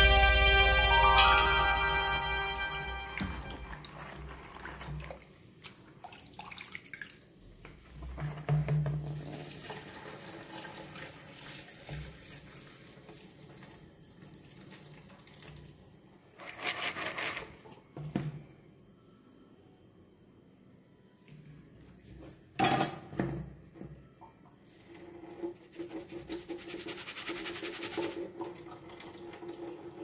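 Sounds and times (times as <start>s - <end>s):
water poured into a strainer: 25.3s - 30.0s.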